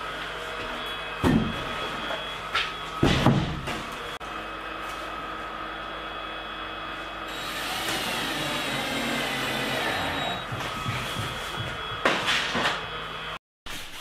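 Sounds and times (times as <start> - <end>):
cordless drill driving screws: 7.3 - 10.4.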